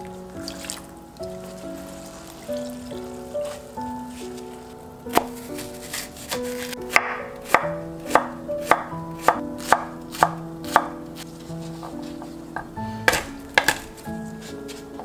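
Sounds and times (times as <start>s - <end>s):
knife chopping on wooden board: 5.9s - 10.9s, 13.1s - 13.9s.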